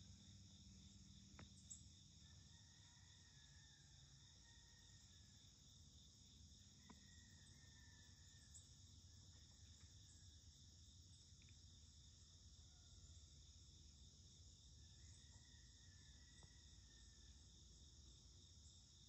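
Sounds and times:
crickets and insects chirping: 0.0s - 19.0s.

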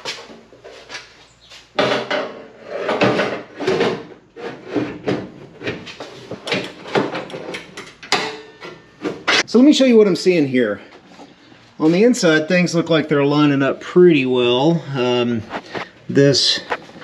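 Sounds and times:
steel panel clanking and scraping: 1.8s - 9.4s.

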